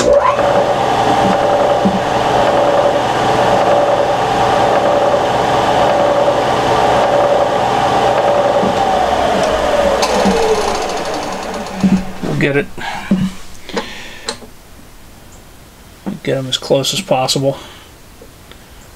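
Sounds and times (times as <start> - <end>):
electric drill motor running: 8.1 - 14.6.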